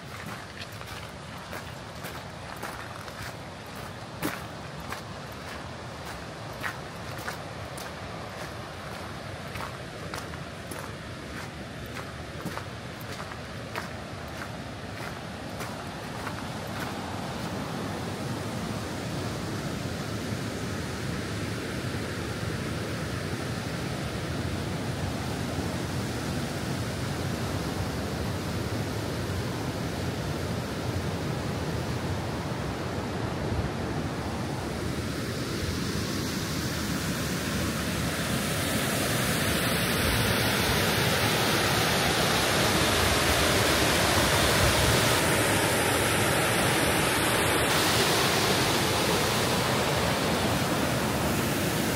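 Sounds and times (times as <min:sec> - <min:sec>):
creek rushing over rocks: 0:00.0 - 0:19.5, 0:35.6 - 0:51.9.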